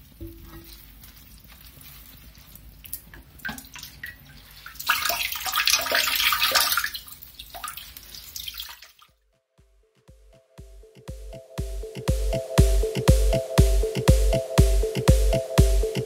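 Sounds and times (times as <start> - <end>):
water splashing and trickling: 0.0 - 9.1
electronic music with a beat: 9.6 - 16.0.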